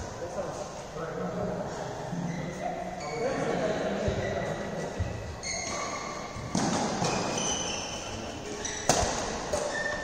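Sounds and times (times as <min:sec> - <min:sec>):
short high squeaks: 0:02.3 - 0:03.4, 0:05.4 - 0:06.4, 0:07.0 - 0:10.0
racket hitting shuttlecock: 0:05.6 - 0:07.7, 0:08.6 - 0:10.0.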